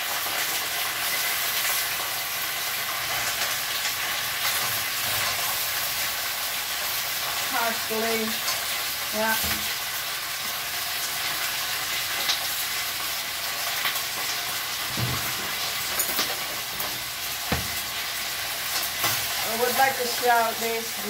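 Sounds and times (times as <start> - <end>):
mussels sizzling in a pan: 0.0 - 21.0
utensil knocking against pan: 17.5 - 17.8.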